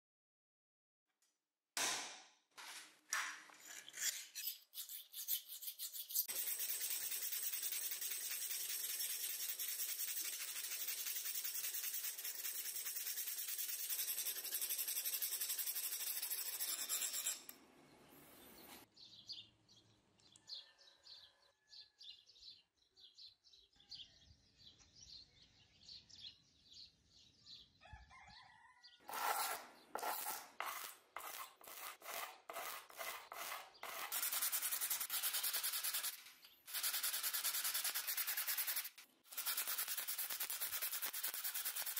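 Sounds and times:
sandpaper rubbing on steel: 0:03.6 - 0:17.4, 0:29.1 - 0:41.9
file rasping on steel: 0:03.6 - 0:17.6, 0:29.1 - 0:41.9.

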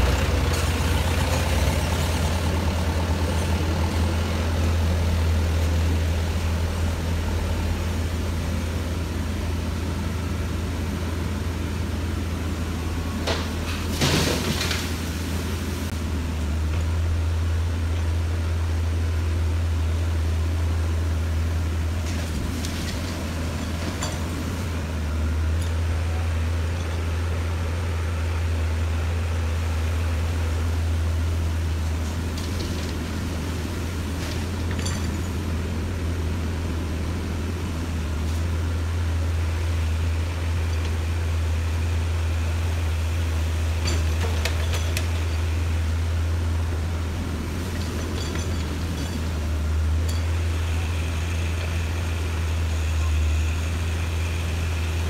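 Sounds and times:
diesel engines droning: 0:00.0 - 0:55.0
metal clanks and knocks: 0:22.1 - 0:24.7, 0:32.0 - 0:35.6, 0:43.8 - 0:45.5, 0:47.5 - 0:50.4.

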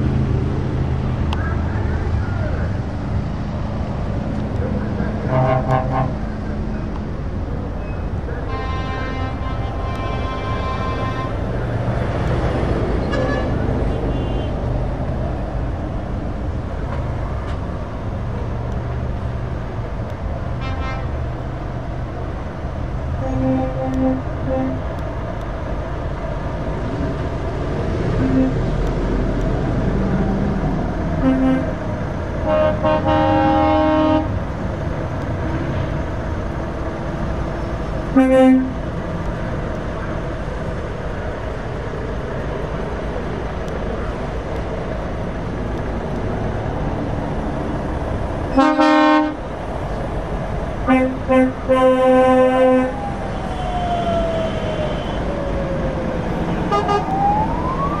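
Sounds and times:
lorries rumbling past: 0:00.0 - 0:58.0
truck horn blasts: 0:05.2 - 0:06.2, 0:08.4 - 0:11.4, 0:13.0 - 0:14.6, 0:20.6 - 0:21.1, 0:23.2 - 0:24.8, 0:28.2 - 0:28.6, 0:31.2 - 0:31.8, 0:32.4 - 0:34.4, 0:38.1 - 0:38.8, 0:48.5 - 0:49.4, 0:50.8 - 0:53.0, 0:56.7 - 0:57.1.

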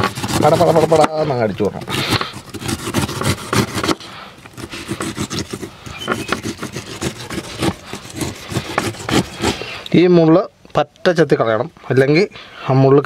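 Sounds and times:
knife scraping pineapple rind: 0:00.0 - 0:10.0.

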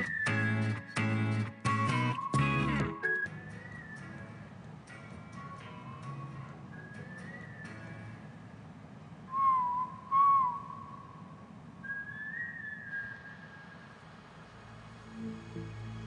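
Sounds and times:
slow whistled tune: 0:00.0 - 0:04.5, 0:05.4 - 0:08.3, 0:09.3 - 0:14.1.

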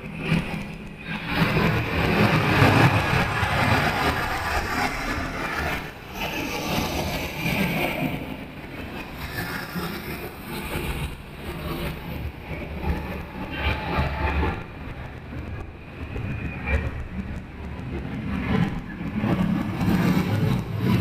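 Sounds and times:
wind and road noise: 0:00.0 - 0:21.0.

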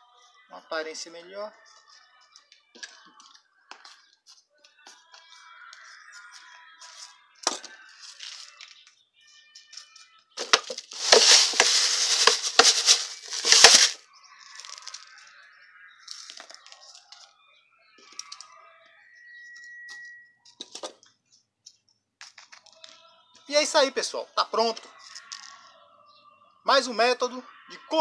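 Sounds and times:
gravel crunching and rattling: 0:10.4 - 0:14.0.

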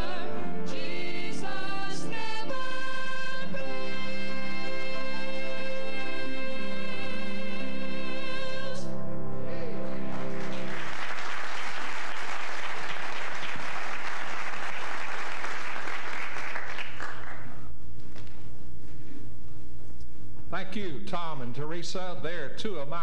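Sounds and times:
singing with accompaniment: 0:00.0 - 0:10.6
congregation applauding: 0:09.9 - 0:17.6.

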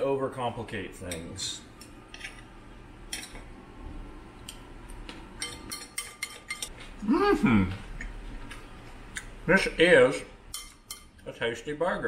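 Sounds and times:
cutlery clinking in ceramic bowl: 0:05.4 - 0:06.7
brief vocal sound: 0:07.0 - 0:07.8.

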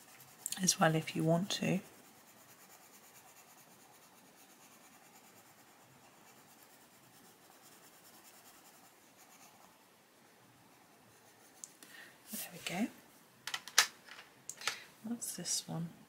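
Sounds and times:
pencil scratching on paper: 0:00.0 - 0:09.8, 0:10.7 - 0:11.6.

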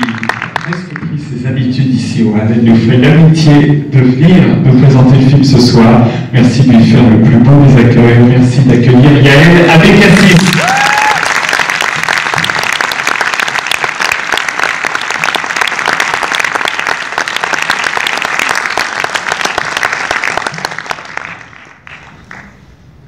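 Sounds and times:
audience applauding: 0:00.0 - 0:01.1, 0:09.8 - 0:22.6.

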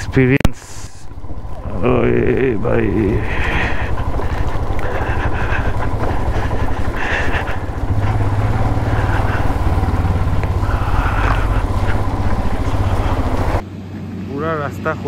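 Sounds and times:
motorcycle engine running: 0:00.0 - 0:15.0
person breathing heavily: 0:01.6 - 0:13.6.

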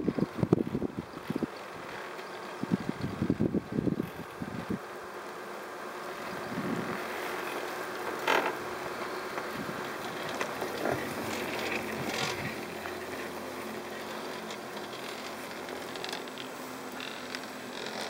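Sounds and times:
chairlift hiss: 0:06.0 - 0:18.0
mechanical knocks and creaks: 0:07.4 - 0:18.0.

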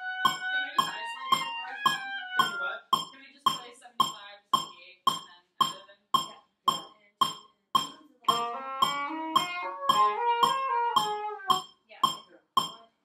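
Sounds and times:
oboes playing held notes: 0:00.0 - 0:03.1, 0:07.8 - 0:12.2
metronome ticking: 0:00.0 - 0:12.9.

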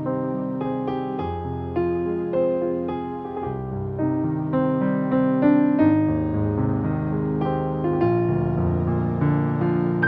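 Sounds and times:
piano music: 0:00.0 - 0:10.0.

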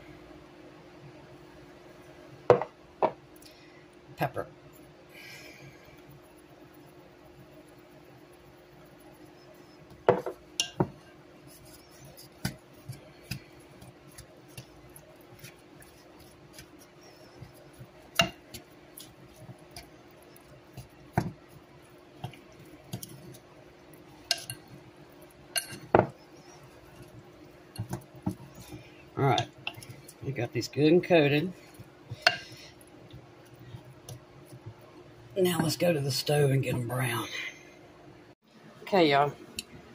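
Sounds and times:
wooden spoon tapping glass bowl: 0:10.1 - 0:11.0.

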